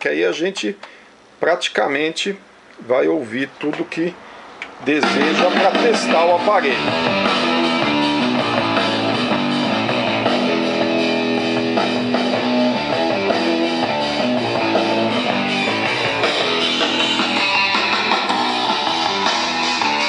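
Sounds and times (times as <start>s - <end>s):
guitar-led music through loudspeakers: 5.0s - 20.0s.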